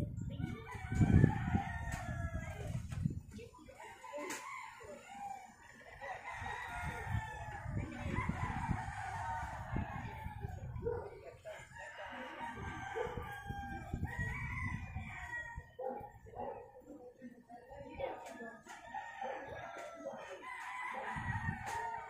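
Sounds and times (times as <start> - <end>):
rooster crowing: 0.7 - 2.6, 3.9 - 10.5, 11.7 - 16.0, 18.7 - 22.0.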